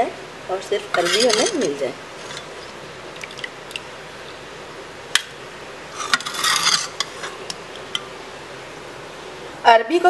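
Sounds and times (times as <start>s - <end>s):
metal spoon clinking and scraping: 0.9s - 2.5s, 6.0s - 7.4s.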